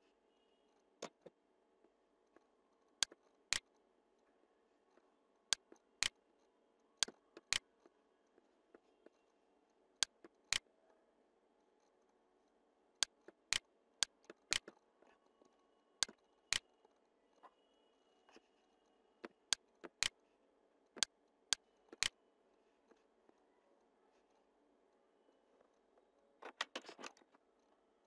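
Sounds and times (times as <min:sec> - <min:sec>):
mouse buttons clicking: 0:07.0 - 0:07.6.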